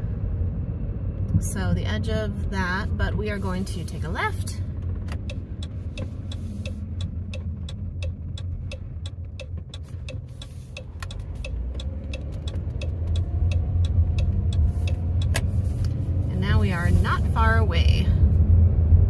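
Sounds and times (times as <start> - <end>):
engine and tyre rumble: 0.0 - 19.0
turn signal clicking: 4.7 - 17.6.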